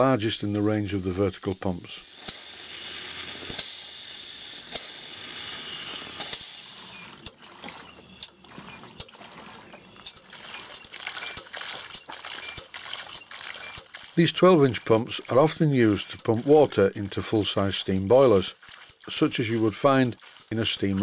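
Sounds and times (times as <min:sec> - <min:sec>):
steam hissing: 0:00.0 - 0:07.1
steam pump clicking: 0:00.0 - 0:21.0
water splashing into tub: 0:05.7 - 0:21.0.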